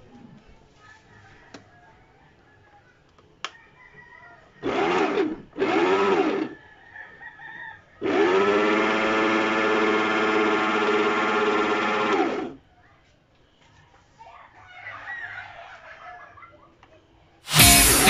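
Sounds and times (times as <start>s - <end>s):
stand mixer motor whining: 4.6s - 6.6s, 8.0s - 12.6s.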